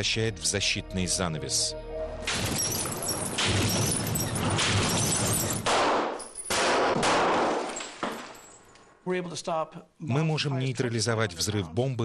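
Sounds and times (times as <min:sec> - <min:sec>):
gunshot into glass: 0:02.3 - 0:08.6
blast and glass shattering: 0:02.3 - 0:08.8.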